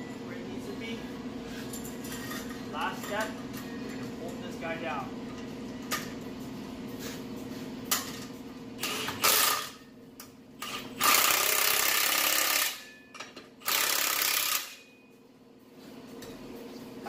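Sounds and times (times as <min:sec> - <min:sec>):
impact wrench bursts: 0:08.8 - 0:09.8, 0:10.6 - 0:12.9, 0:13.6 - 0:14.8.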